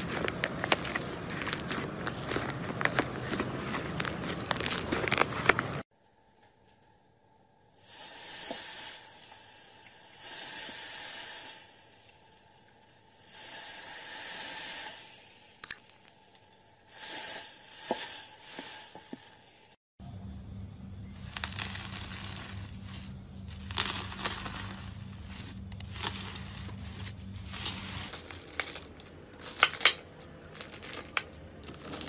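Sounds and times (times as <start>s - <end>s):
slime squishing when kneaded: 21.2s - 28.8s.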